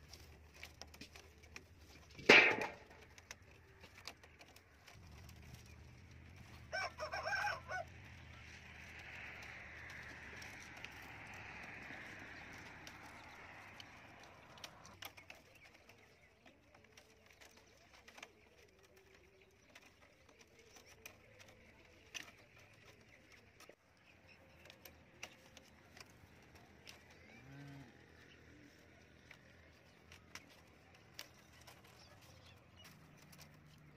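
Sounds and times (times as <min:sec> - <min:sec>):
bamboo sticks clicking: 0:00.0 - 0:23.8.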